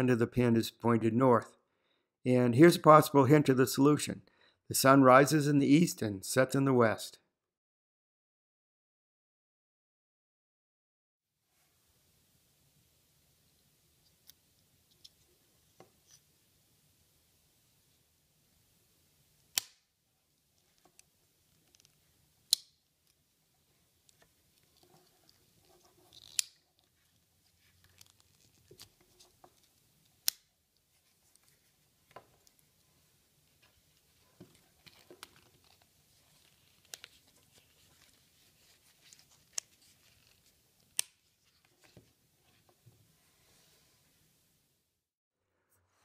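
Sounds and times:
soft handling sounds: 13.4s - 16.5s, 20.1s - 44.4s.

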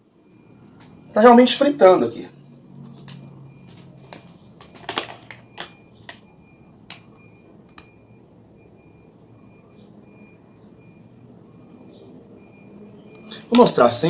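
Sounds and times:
small objects clicking and tapping: 4.0s - 6.3s, 6.9s - 7.1s.

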